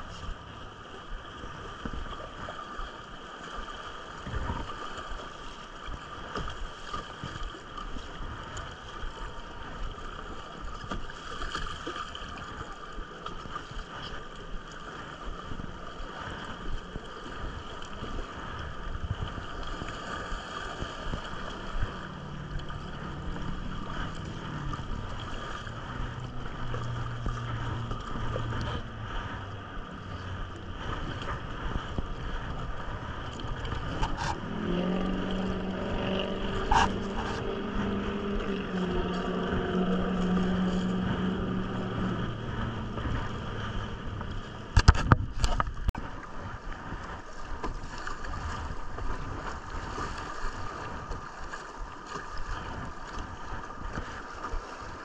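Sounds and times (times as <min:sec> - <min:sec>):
low steady hum: 0:15.2 - 0:47.6
wind buffeting microphone: 0:15.2 - 0:55.0
river water rushing: 0:19.6 - 0:55.0.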